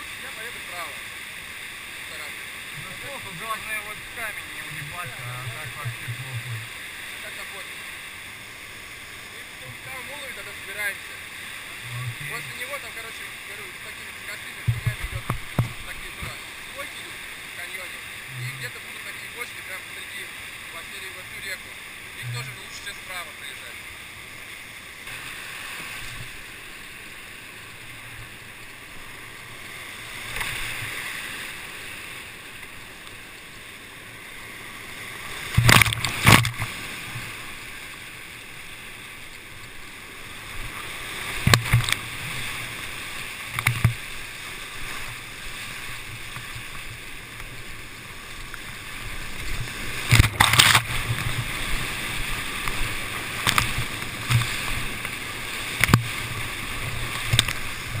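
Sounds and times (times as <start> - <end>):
waves splashing over boat: 0.0 - 58.0
whitewater rushing: 0.0 - 58.0.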